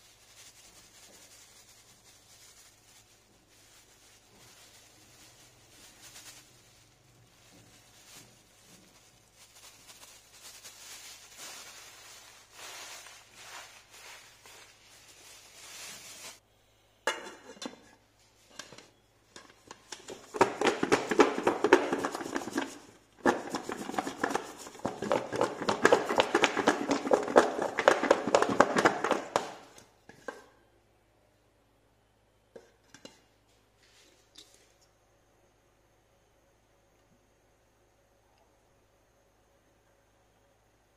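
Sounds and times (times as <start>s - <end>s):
food shaken in lidded metal bowl: 0.0s - 16.4s, 19.9s - 29.8s.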